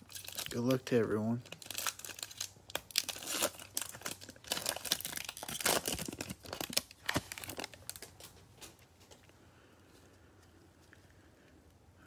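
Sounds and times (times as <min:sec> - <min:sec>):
foil wrapper tearing and crinkling: 0:00.0 - 0:00.8, 0:01.4 - 0:08.3.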